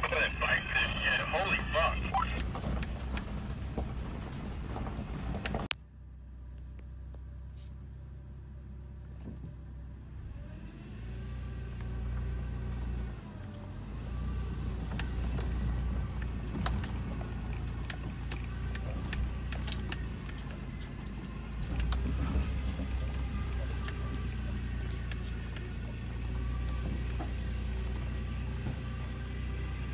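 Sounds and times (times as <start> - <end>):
car engine running at low speed: 0.0 - 29.9
vehicle knocking and rattling over rocks: 2.4 - 5.7, 14.7 - 29.2.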